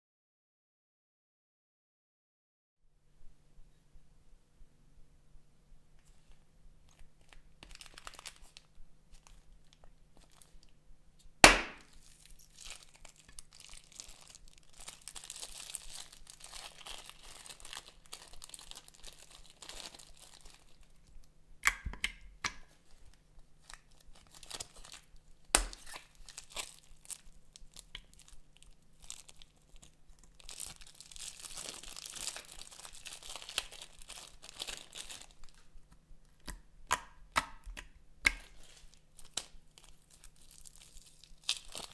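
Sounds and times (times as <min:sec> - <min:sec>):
plastic bags crinkling: 0:06.9 - 0:10.7, 0:11.6 - 0:21.2, 0:22.7 - 0:36.0, 0:38.4 - 0:41.9
slime squelching: 0:38.3 - 0:41.9.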